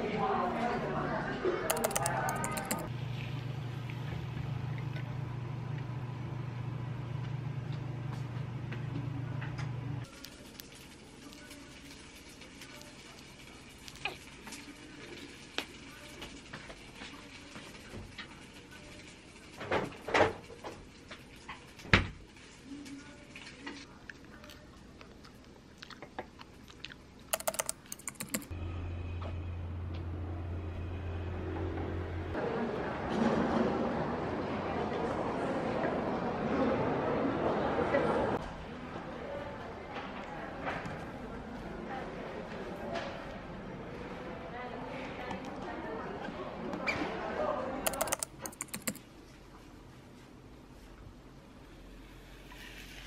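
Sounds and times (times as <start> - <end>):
chopsticks clicking on plate: 1.7 - 2.8.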